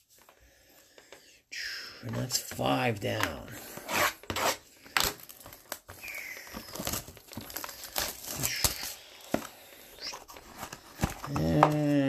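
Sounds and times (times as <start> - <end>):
plastic wrapping crinkling and tearing: 3.9 - 12.0.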